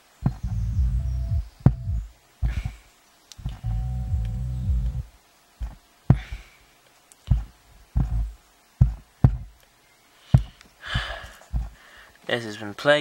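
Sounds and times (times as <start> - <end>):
subwoofer bass music: 0.2 - 2.7, 3.4 - 5.8, 8.0 - 8.4
short low thuds with clicks: 0.2 - 6.5, 7.2 - 9.6, 10.3 - 11.8.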